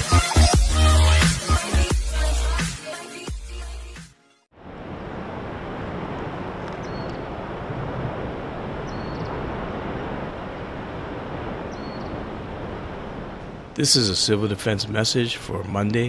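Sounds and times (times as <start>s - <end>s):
wind buffeting microphone: 4.6s - 13.8s.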